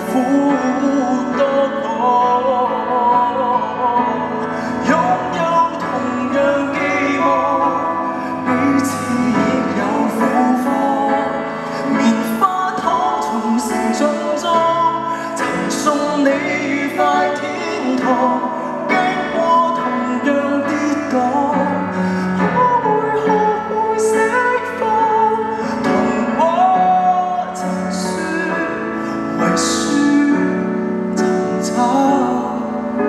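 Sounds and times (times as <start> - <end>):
grand piano: 0.0 - 33.0
man singing pop ballad: 0.0 - 33.0.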